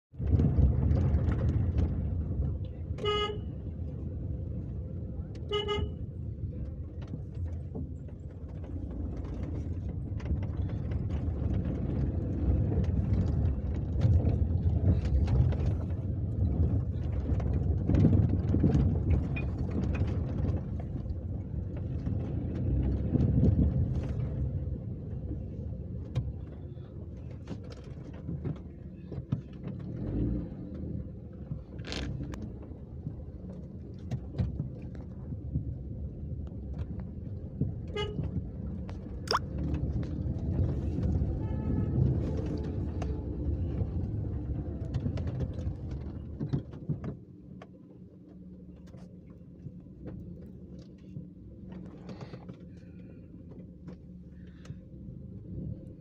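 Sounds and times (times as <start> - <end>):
car engine rumble: 0.1 - 56.0
car horn tooting: 3.0 - 3.6, 5.5 - 6.0, 37.9 - 38.3.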